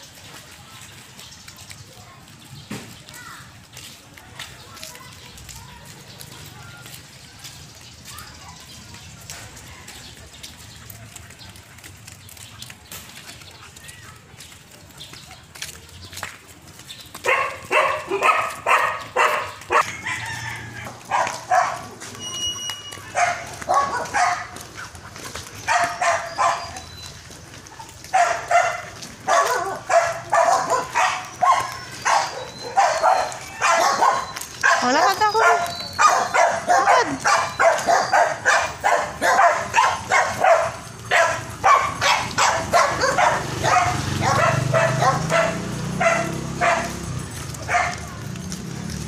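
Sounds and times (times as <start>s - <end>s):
footsteps on concrete: 0.0s - 49.0s
dog barking: 17.2s - 20.2s, 20.9s - 22.1s, 23.0s - 25.0s, 25.6s - 26.9s, 28.1s - 48.2s.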